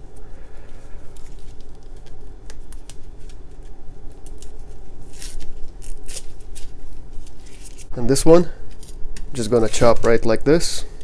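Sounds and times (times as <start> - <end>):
low hum: 0.0 - 9.4
onion skin crackling and rustling: 0.0 - 11.0
onion skin tearing rasp: 4.1 - 6.8.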